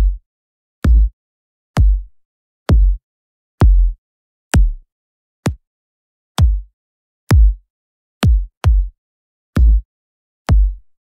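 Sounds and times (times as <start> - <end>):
kick drum hits: 2.7 - 3.0, 3.6 - 4.0, 4.6 - 4.8, 6.4 - 6.6, 7.3 - 7.6, 8.2 - 8.9.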